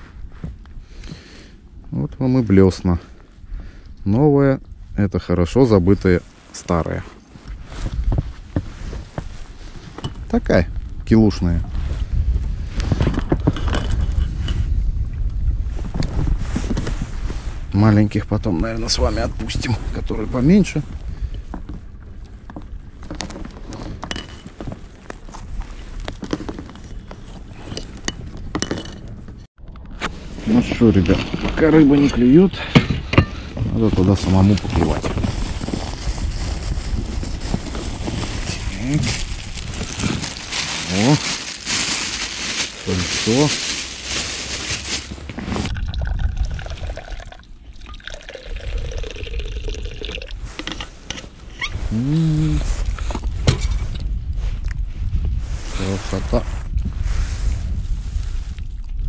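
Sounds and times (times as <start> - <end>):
objects knocking and clinking: 24.0 - 24.6, 26.5 - 29.1
liquid pouring into container: 45.7 - 50.4.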